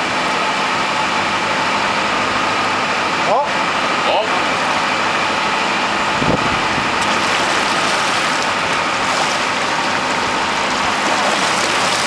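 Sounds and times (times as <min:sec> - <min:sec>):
boat engine running: 0:00.0 - 0:12.0
water rushing: 0:04.4 - 0:12.0
wind noise: 0:06.0 - 0:08.2.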